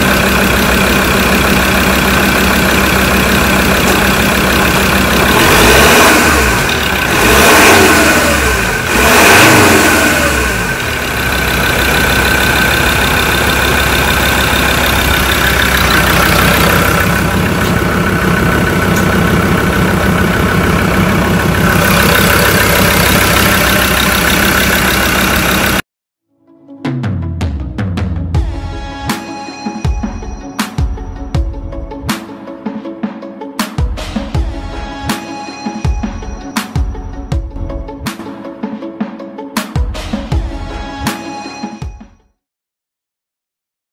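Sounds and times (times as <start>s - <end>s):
diesel engine idling and revving: 0.0s - 25.9s.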